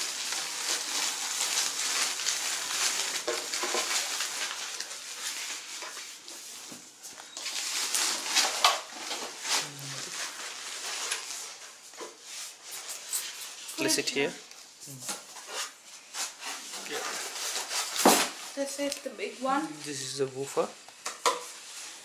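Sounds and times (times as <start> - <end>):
plastic bag crinkling: 0.0 - 20.8.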